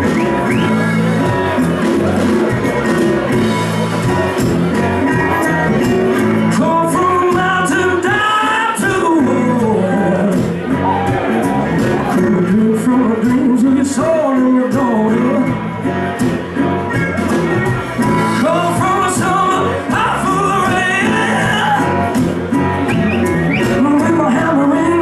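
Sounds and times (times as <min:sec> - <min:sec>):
acoustic blues-rock band playing: 0:00.0 - 0:25.0
man singing: 0:05.4 - 0:15.8, 0:17.9 - 0:22.3, 0:23.1 - 0:25.0.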